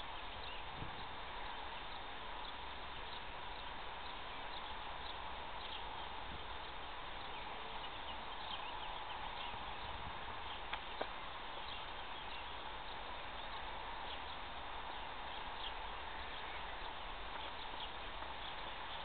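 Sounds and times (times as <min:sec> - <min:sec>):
outdoor background hiss: 0:00.0 - 0:19.0.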